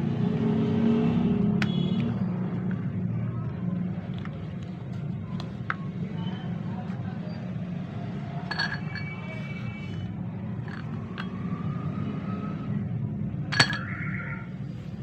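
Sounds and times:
metal tube clinking on plastic: 0:08.4 - 0:09.6, 0:10.6 - 0:11.4, 0:13.5 - 0:14.0.

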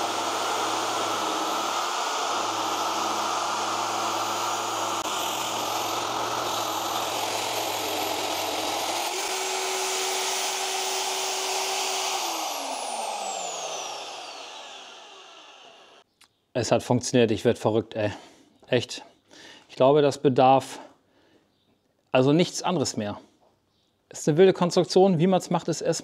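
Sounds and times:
drill motor spinning down: 0:00.0 - 0:16.0
magnetic drill boring steel: 0:00.0 - 0:16.0.

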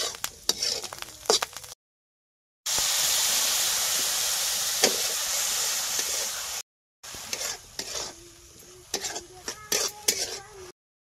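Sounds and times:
metal spatula scraping wok: 0:00.0 - 0:01.7, 0:04.8 - 0:10.7
food sizzling in hot oil: 0:00.0 - 0:01.8, 0:02.7 - 0:10.8.

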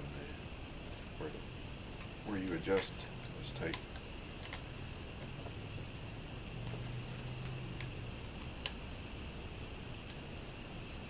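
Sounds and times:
low steady hum: 0:00.0 - 0:11.0
sharp metal clicks: 0:02.7 - 0:04.7.

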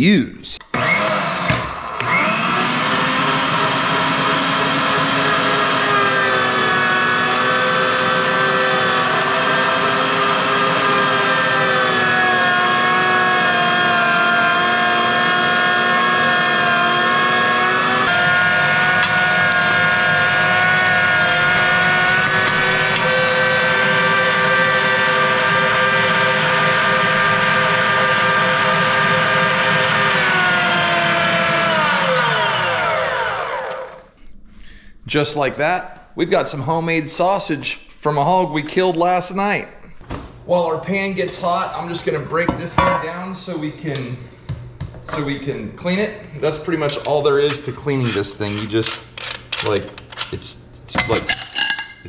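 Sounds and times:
electric meat grinder whining: 0:00.7 - 0:34.1.

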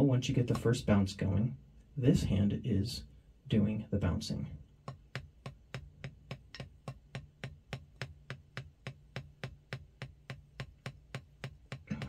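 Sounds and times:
drumstick tapping ticks: 0:04.8 - 0:12.0.

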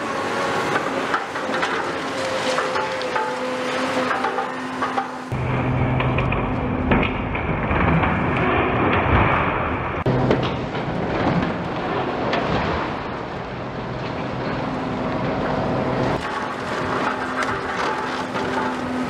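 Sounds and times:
diesel engine under load: 0:00.0 - 0:19.0
hydraulic jaw crunching concrete: 0:16.2 - 0:19.0.

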